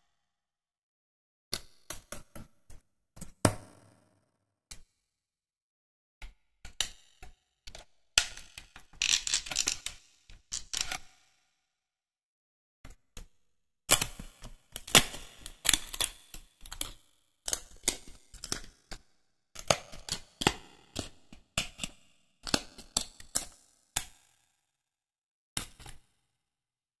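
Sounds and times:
puzzle pieces clicking and crinkling: 8.9s - 11.0s.

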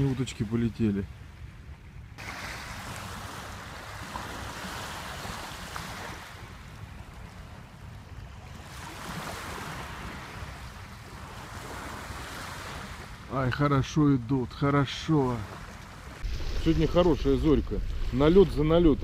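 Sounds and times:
wind buffeting microphone: 15.6s - 19.0s.

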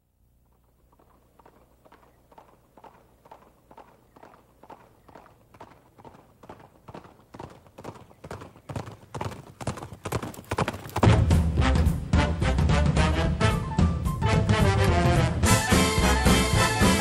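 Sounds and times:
horse hooves clip-clopping: 0.4s - 12.7s
loud music: 11.1s - 17.0s.

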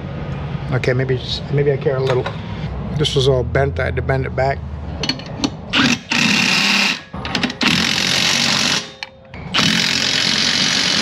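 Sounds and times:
power tool rattling and hammering: 5.1s - 11.0s.

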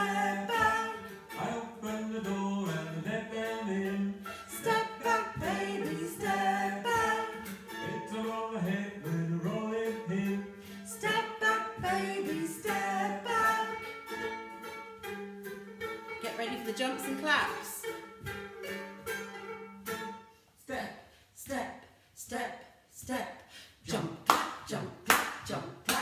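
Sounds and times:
group singing unaccompanied: 0.0s - 14.4s.

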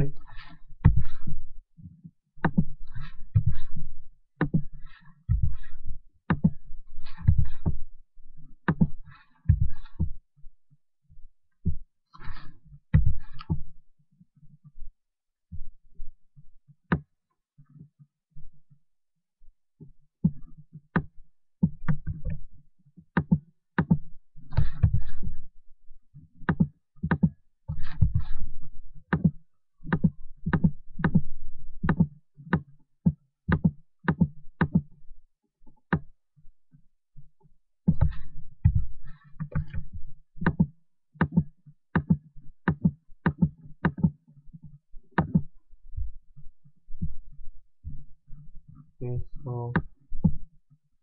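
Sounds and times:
computer mouse clicks and taps: 0.4s - 3.8s, 4.4s - 4.7s, 5.3s - 7.8s, 8.6s - 10.2s, 11.6s - 13.6s, 20.2s - 22.4s, 23.2s - 25.3s, 26.5s - 28.4s, 29.1s - 31.2s, 31.8s - 34.9s, 35.7s - 36.1s, 37.9s - 45.5s.

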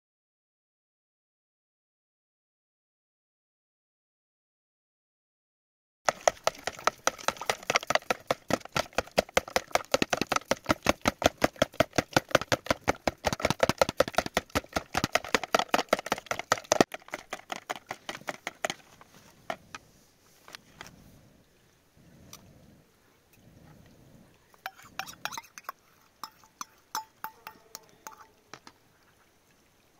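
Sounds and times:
spoon clicking against plastic tub: 25.0s - 28.8s.

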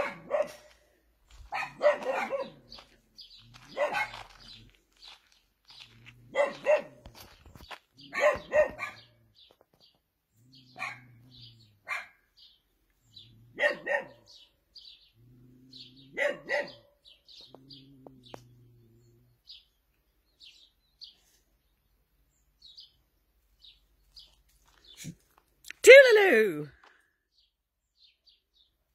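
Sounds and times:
dogs barking: 0.0s - 0.8s, 1.4s - 4.7s, 6.3s - 7.4s, 8.0s - 9.2s, 10.6s - 12.3s, 13.4s - 14.5s, 15.7s - 18.4s
small birds chirping: 0.0s - 28.9s.

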